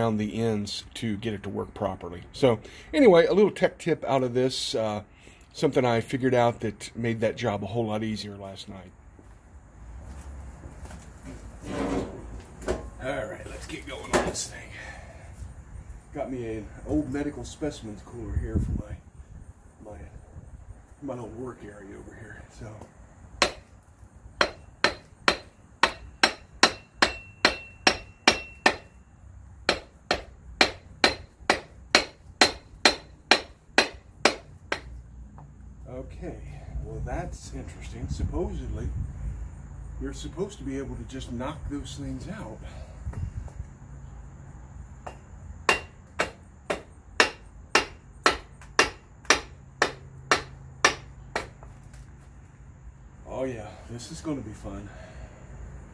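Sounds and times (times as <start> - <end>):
hammer striking metal: 23.4 - 23.7, 24.4 - 29.0, 29.7 - 34.9, 45.0 - 51.6.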